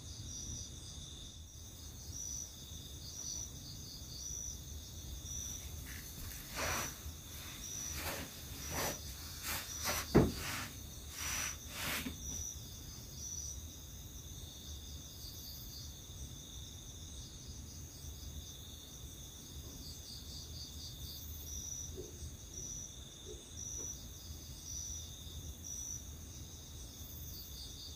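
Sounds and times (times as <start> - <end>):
bedding rustling on plank floor: 5.5 - 12.4
sharp knock: 9.8 - 10.8.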